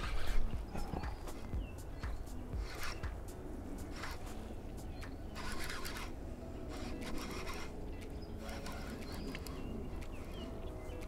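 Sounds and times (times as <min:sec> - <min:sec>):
fishing reel scraping: 0:03.9 - 0:04.3, 0:05.3 - 0:09.6.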